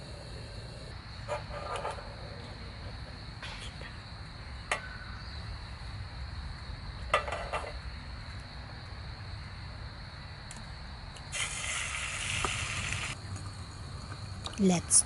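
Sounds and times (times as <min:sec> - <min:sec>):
insect chirring: 0:11.2 - 0:15.0.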